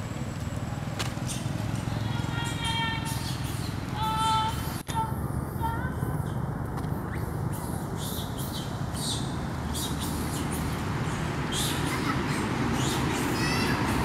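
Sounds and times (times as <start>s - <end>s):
high-pitched chirping calls: 1.3s - 4.8s, 6.2s - 14.0s
steady low rumble: 3.8s - 12.9s.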